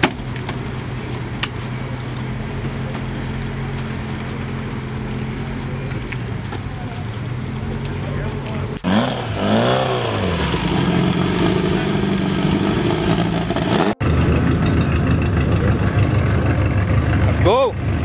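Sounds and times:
car engine blipped: 0.0s - 18.0s
car engine idling: 0.0s - 18.0s.

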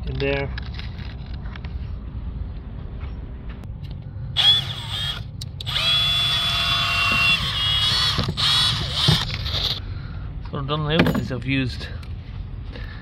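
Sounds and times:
power drill spinning: 4.4s - 9.8s.

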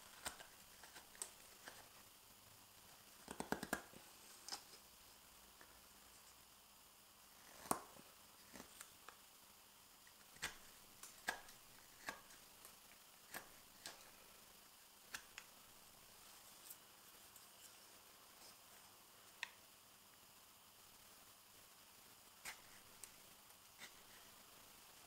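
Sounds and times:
knife carving wood shavings: 0.0s - 2.0s, 7.3s - 8.9s, 10.1s - 14.2s, 22.4s - 24.3s.

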